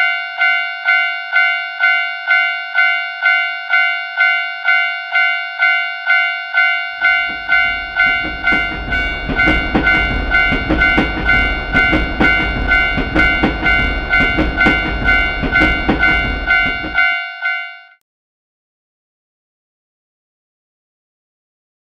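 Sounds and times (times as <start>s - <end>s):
railroad crossing bell ringing: 0.0s - 18.0s
train rumbling past: 7.0s - 17.2s
wheels clattering over rail joints: 7.1s - 17.1s.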